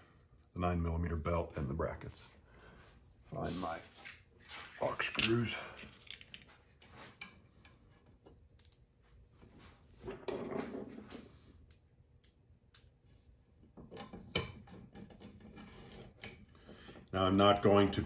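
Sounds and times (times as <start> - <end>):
small screws clicking and rattling: 5.8 - 6.4.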